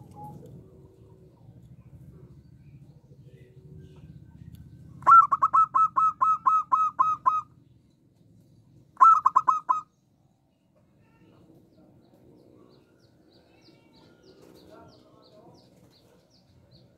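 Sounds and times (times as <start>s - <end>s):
dove staccato call: 5.0s - 7.5s, 9.0s - 9.9s.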